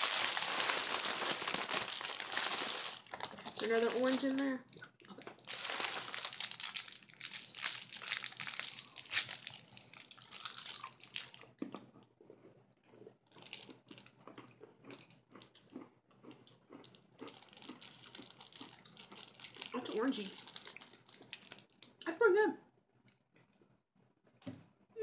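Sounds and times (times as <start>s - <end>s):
candy wrapper crinkling: 0.0s - 11.6s, 13.3s - 15.7s, 16.8s - 22.0s
chewing candy: 0.0s - 22.1s.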